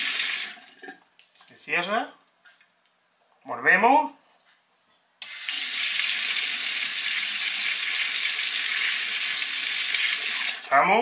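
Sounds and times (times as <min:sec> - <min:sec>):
tap water running into sink: 0:05.2 - 0:10.7.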